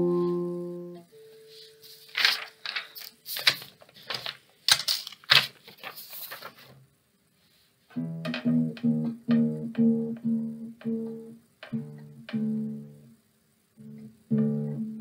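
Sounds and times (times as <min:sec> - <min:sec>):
classical guitar playing: 0:00.0 - 0:01.1, 0:07.9 - 0:13.2, 0:13.8 - 0:15.0
paper rustling and crackling: 0:01.8 - 0:06.8.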